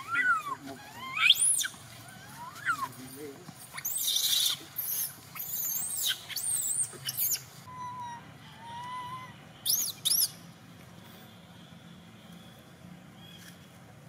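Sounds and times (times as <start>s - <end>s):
infant monkey screeching: 0.0s - 3.1s, 3.7s - 10.3s.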